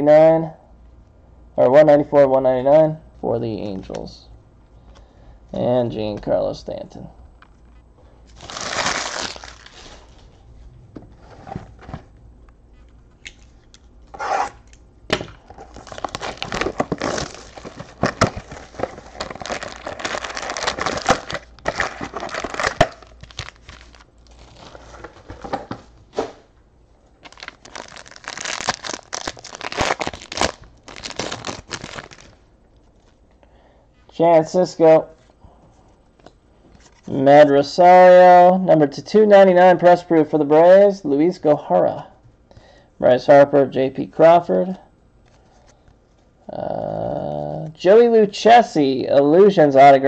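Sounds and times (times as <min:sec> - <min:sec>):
foil wrappers crinkling and tearing: 0:08.3 - 0:10.3, 0:15.4 - 0:25.5, 0:27.2 - 0:32.4.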